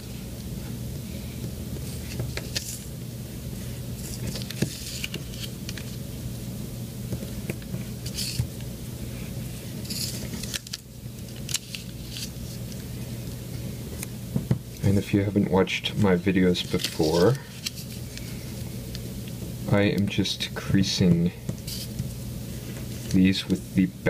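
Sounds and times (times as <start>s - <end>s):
paper rustling and crinkling: 1.9s - 2.9s, 4.0s - 6.0s, 9.8s - 12.8s, 16.5s - 18.5s.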